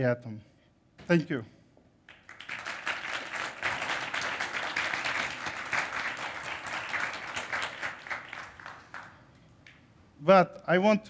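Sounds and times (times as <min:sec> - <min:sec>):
audience applauding: 0:02.1 - 0:09.8.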